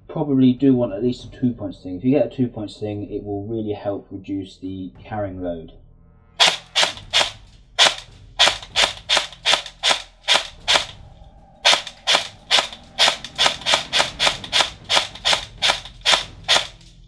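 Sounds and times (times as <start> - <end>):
airsoft rifle shots: 6.4 - 11.0, 11.6 - 16.8.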